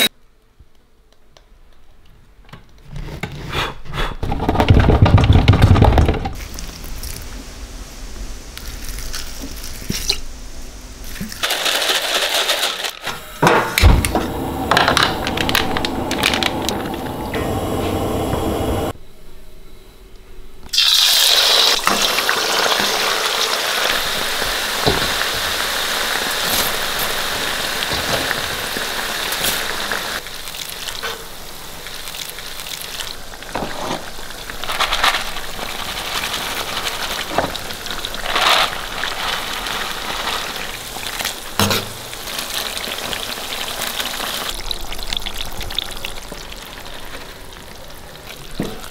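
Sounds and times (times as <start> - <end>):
spices sizzling in hot oil: 20.7 - 48.6.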